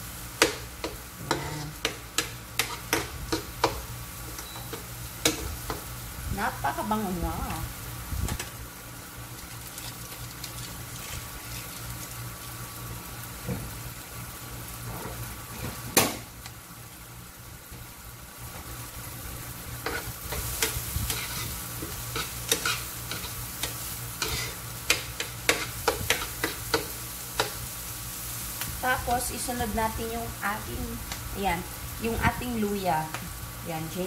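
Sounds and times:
onion and garlic sizzling in oil: 0.0s - 34.0s
metal spoon scraping pan: 19.8s - 26.8s.

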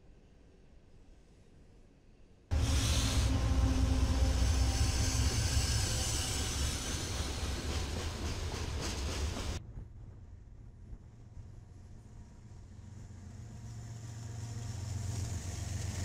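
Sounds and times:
train cars rolling on rails: 2.5s - 9.6s, 12.4s - 16.0s
diesel locomotive engine rumble: 2.5s - 16.0s.

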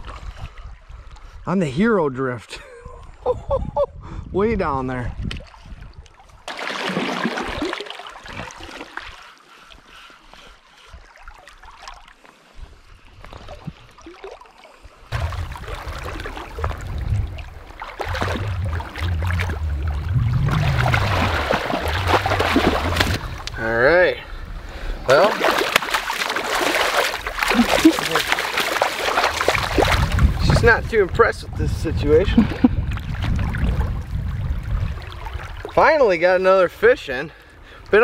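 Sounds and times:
wading boots splashing through water: 5.4s - 9.8s, 10.8s - 12.3s, 13.3s - 23.5s, 25.1s - 30.8s
fish splashing at water surface: 6.5s - 9.2s, 14.0s - 23.6s, 25.2s - 30.4s
low microphone rumble: 15.1s - 24.9s.

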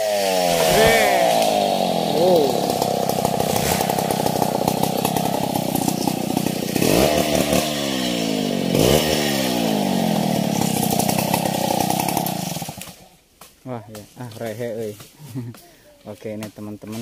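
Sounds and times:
chainsaw cutting log: 0.0s - 13.5s.

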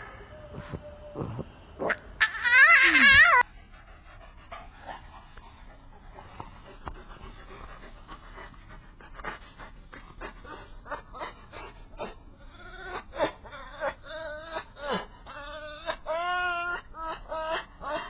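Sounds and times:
fox squealing: 0.5s - 3.5s, 10.4s - 18.0s.

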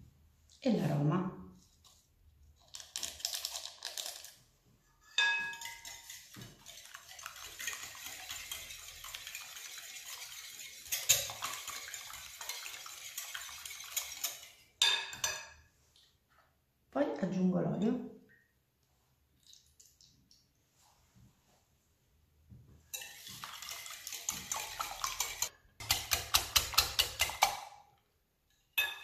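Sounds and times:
whisk clinking against glass: 5.1s - 15.5s, 22.9s - 27.5s, 28.8s - 29.0s
whisk beating eggs: 5.5s - 14.6s, 22.9s - 27.6s.

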